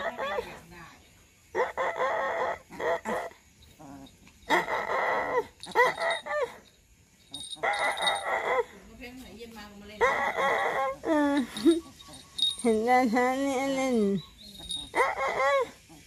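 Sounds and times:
puppy yapping: 0:07.4 - 0:08.7, 0:14.2 - 0:15.8.

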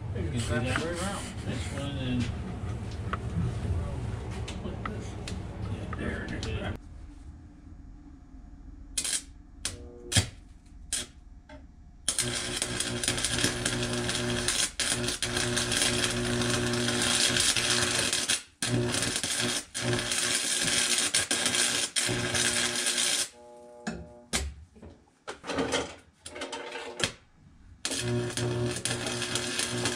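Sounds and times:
electric arc welding: 0:09.0 - 0:10.3, 0:12.1 - 0:23.7, 0:27.8 - 0:29.9.

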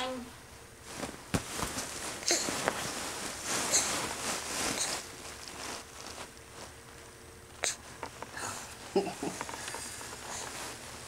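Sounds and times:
breathy rustling on microphone: 0:00.8 - 0:06.8, 0:09.4 - 0:11.0.

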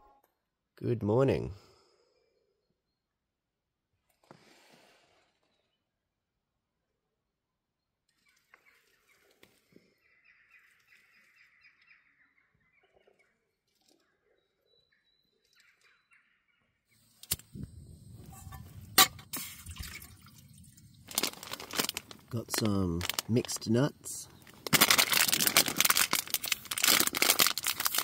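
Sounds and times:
metal pot clanking: 0:18.3 - 0:20.1.

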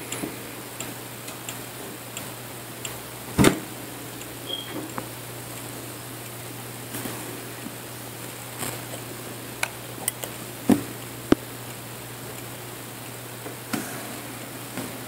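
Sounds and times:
steady low hum: 0:00.0 - 0:15.0
switch circuit parts clicking: 0:09.6 - 0:13.2.

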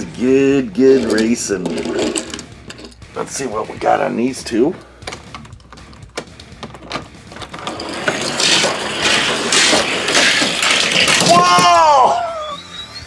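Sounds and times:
toy cars rolling on plastic track: 0:00.2 - 0:02.4, 0:07.4 - 0:13.0.

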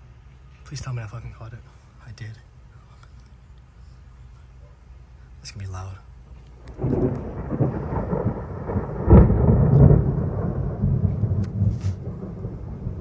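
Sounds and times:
loud thunder rumble and crack: 0:06.6 - 0:13.0.

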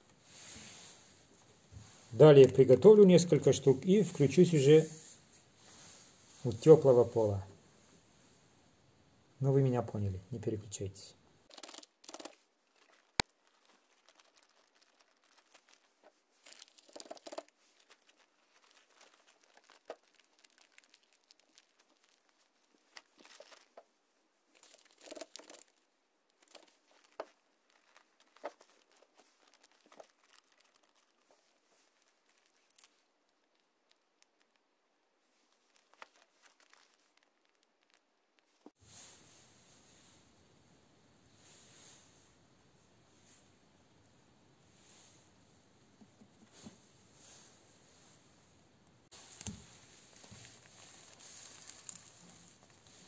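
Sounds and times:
plastic bags crinkling: 0:11.4 - 0:23.9, 0:24.5 - 0:34.6, 0:35.4 - 0:38.7, 0:49.1 - 0:53.0.

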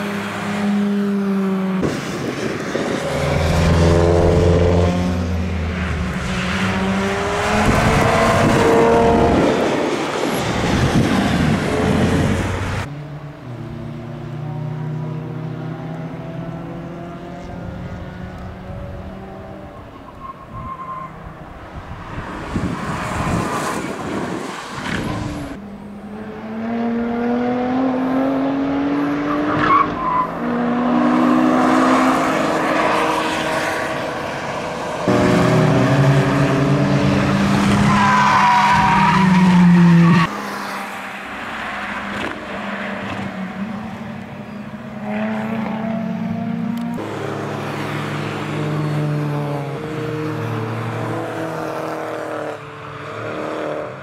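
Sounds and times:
cars passing: 0:00.0 - 0:54.0
tyre squeal: 0:19.8 - 0:21.3
race car engine revving: 0:26.0 - 0:40.6.

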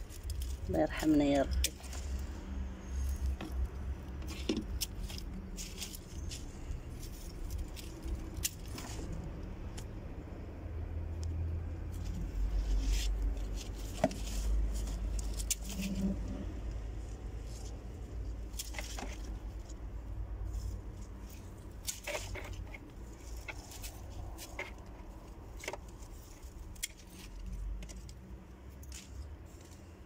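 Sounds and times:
leaves rustling and crackling: 0:00.0 - 0:10.0, 0:11.8 - 0:30.0.

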